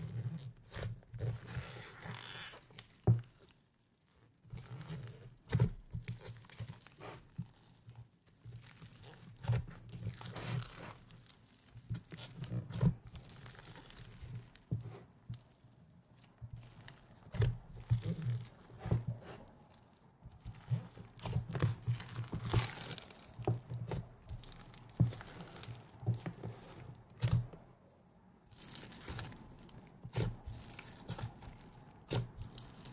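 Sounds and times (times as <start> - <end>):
slime crackling and tearing: 8.4 - 14.7, 15.3 - 27.5, 28.5 - 32.9.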